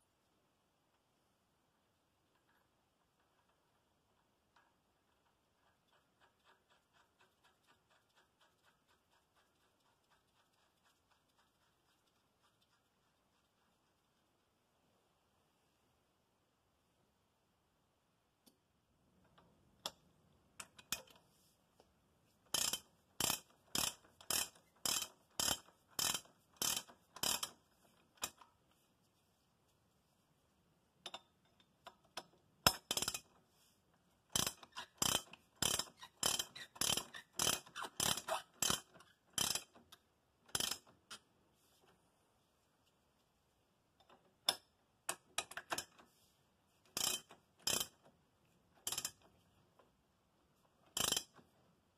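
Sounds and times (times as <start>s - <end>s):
ratchet wrench clicking: 22.5s - 27.6s, 32.7s - 33.3s, 34.3s - 39.8s, 40.5s - 40.9s, 47.0s - 48.0s, 48.8s - 49.2s, 50.9s - 51.4s.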